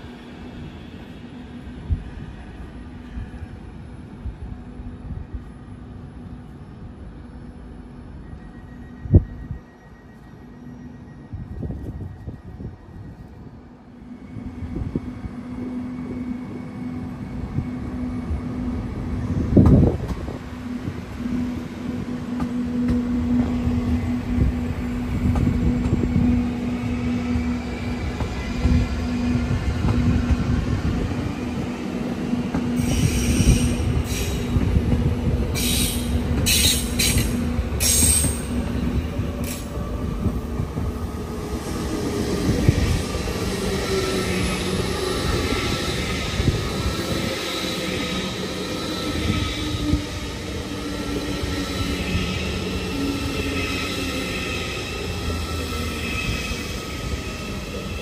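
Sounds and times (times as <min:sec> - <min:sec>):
train rumble: 0:14.4 - 0:58.0.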